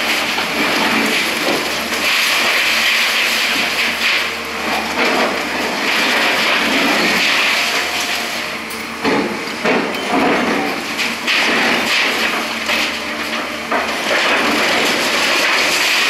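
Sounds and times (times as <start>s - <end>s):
concrete and rubble crashing down: 13.8s - 16.0s.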